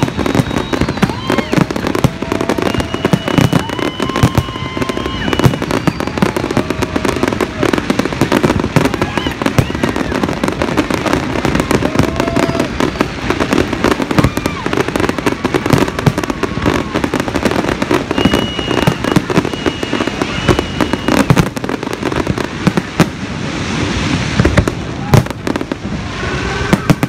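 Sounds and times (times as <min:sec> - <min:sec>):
high steady whistle: 0:00.0 - 0:07.4, 0:17.7 - 0:21.8
fireworks bangs and crackling: 0:00.0 - 0:27.0.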